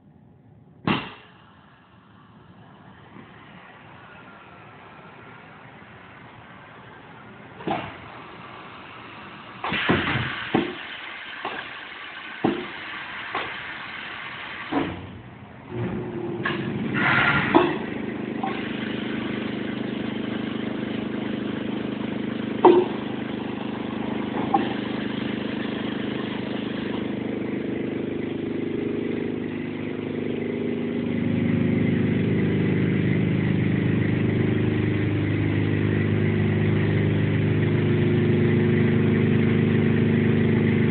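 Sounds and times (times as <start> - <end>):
industrial machine humming: 0.0 - 40.9
sharp machine clank: 0.9 - 1.4, 9.6 - 11.7.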